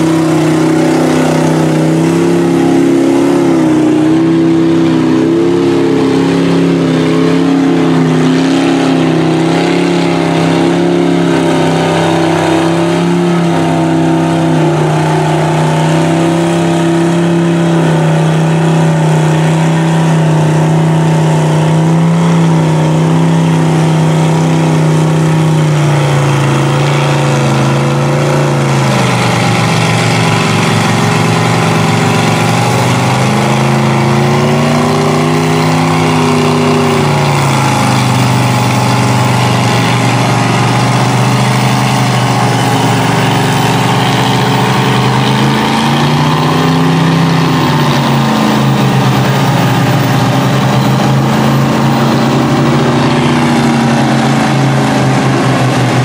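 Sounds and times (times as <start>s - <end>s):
tires churning through mud: 0.0s - 56.0s
truck engine revving: 0.0s - 56.0s.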